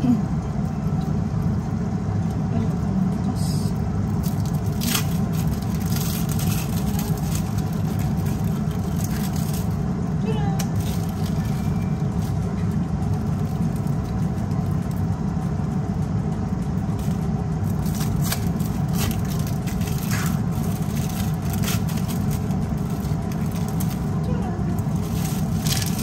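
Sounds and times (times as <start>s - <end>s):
low mechanical hum: 0.0s - 26.0s
plastic wrapper crackling: 4.2s - 9.8s, 10.7s - 12.4s, 17.0s - 26.0s.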